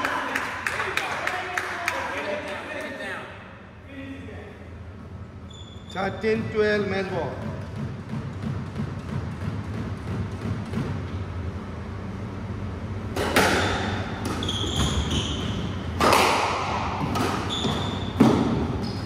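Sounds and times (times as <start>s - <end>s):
low steady hum: 0.0s - 19.0s
squash ball cracking off walls: 7.4s - 11.2s, 13.2s - 15.0s, 15.9s - 18.8s
shoes squeaking on wooden floor: 14.3s - 15.8s, 17.4s - 19.0s.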